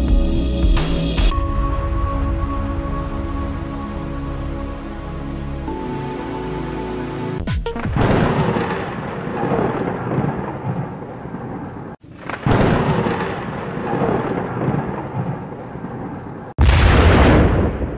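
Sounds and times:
rain: 2.2s - 7.4s, 8.0s - 17.9s
loud thunder clap: 7.9s - 17.9s
rolling thunder: 8.0s - 17.9s.

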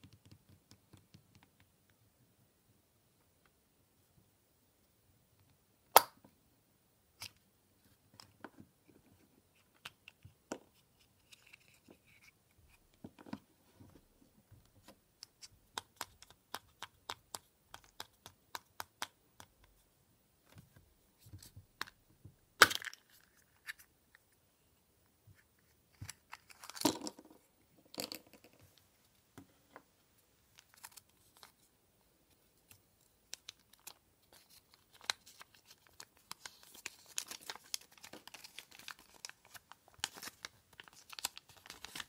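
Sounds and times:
plastic capsule popping open: 5.9s - 6.2s, 22.6s - 23.3s, 26.0s - 28.6s
chocolate egg snapping apart: 22.6s - 23.0s
plastic capsule clicks and taps: 26.0s - 28.6s.

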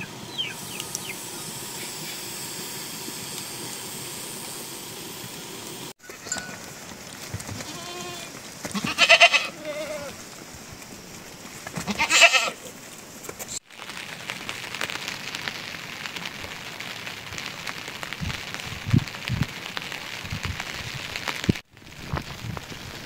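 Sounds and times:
rain hissing: 0.0s - 23.0s
livestock bleating: 7.6s - 10.2s, 11.9s - 12.6s.

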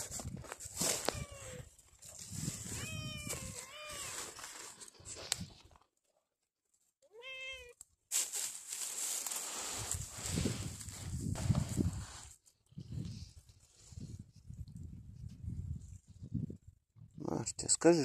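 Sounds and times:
cat meowing: 1.0s - 1.7s, 2.7s - 4.3s, 7.1s - 7.8s.

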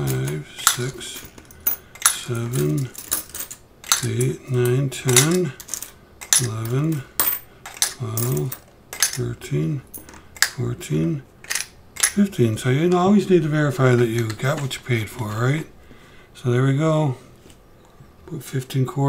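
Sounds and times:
coins clinking into tube: 0.0s - 9.2s, 11.4s - 12.2s
man counting aloud: 2.1s - 3.0s, 3.9s - 5.6s, 6.3s - 7.2s, 7.8s - 11.3s, 12.1s - 15.7s.

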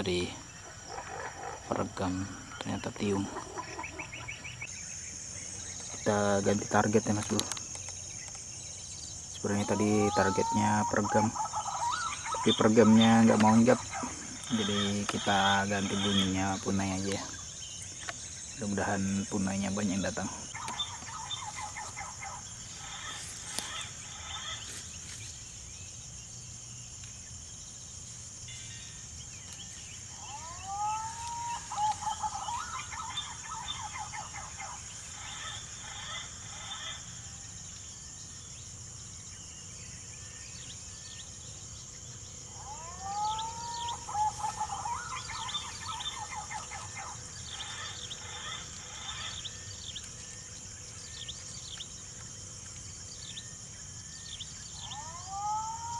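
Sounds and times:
high insect drone: 0.0s - 55.9s
whistled bird calls: 9.4s - 17.4s, 19.9s - 24.7s, 29.5s - 37.0s, 42.5s - 50.1s, 53.2s - 55.9s.

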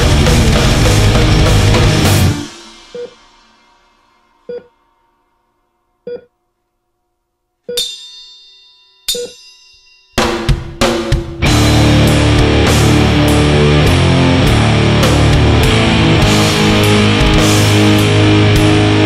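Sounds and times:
heavy metal band playing: 0.0s - 4.2s, 10.2s - 19.0s
single ringing hits: 7.7s - 10.8s.

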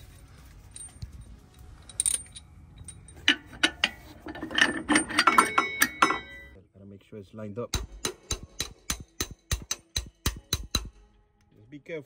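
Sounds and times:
metal clinks and knocks: 0.5s - 6.6s
metallic ringing: 0.6s - 6.6s.

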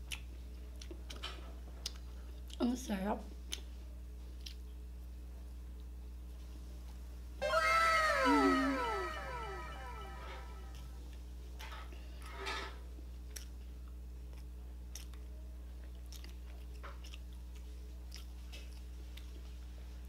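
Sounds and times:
low hum: 7.4s - 11.0s
person chewing: 14.3s - 15.2s, 15.9s - 17.3s, 18.1s - 19.3s.

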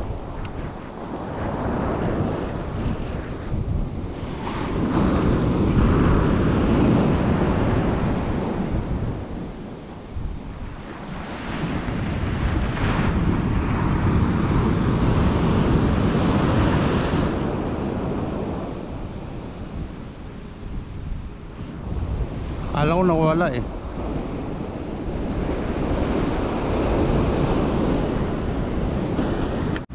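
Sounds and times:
ocean surf breaking on sand: 0.0s - 29.9s
wind buffeting microphone: 0.0s - 29.9s.

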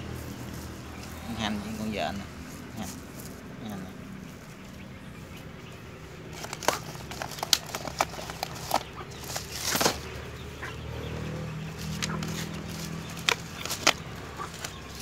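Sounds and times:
chickens clucking: 0.0s - 15.0s
plastic feed sacks rustling: 6.3s - 10.1s.

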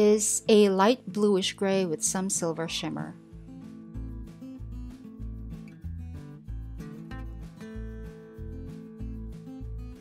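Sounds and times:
plucked guitar notes: 5.4s - 9.2s.

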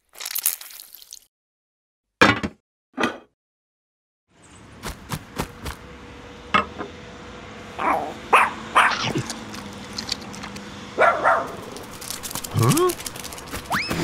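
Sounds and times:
small dog whining and yipping: 13.7s - 14.0s.

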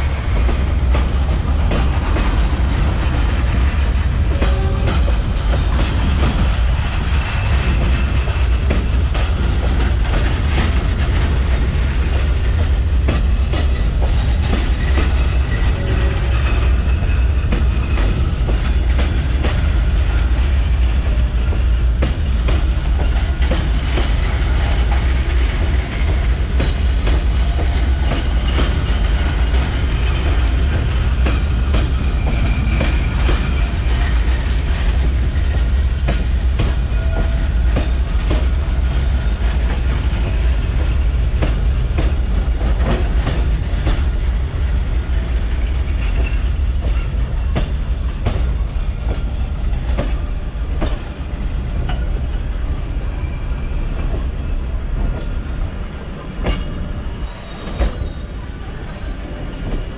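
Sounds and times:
train wheels rumbling on rail: 0.0s - 59.9s
faint wheel squeals: 56.9s - 59.9s.

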